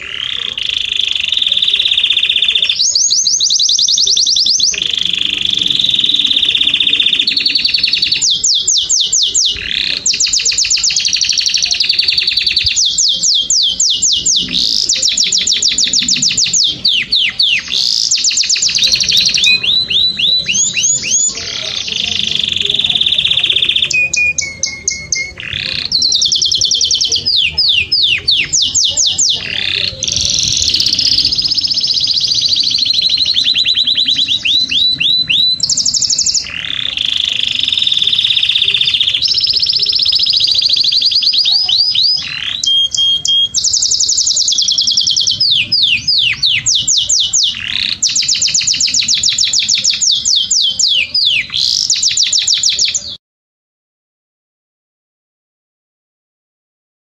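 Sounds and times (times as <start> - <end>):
canary singing trills: 0.0 - 53.2.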